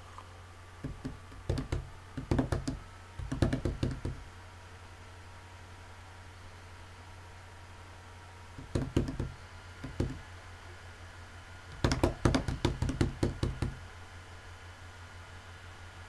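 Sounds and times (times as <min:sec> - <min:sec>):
low steady hum: 0:00.0 - 0:16.0
knocks on a hard surface: 0:00.8 - 0:04.2, 0:08.6 - 0:10.2, 0:11.7 - 0:13.8.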